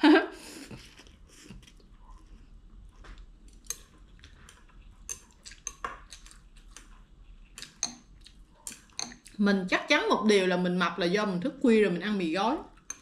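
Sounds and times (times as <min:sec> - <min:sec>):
utensils clinking and scraping bowl: 0:03.5 - 0:06.3, 0:07.6 - 0:09.3, 0:12.8 - 0:13.0.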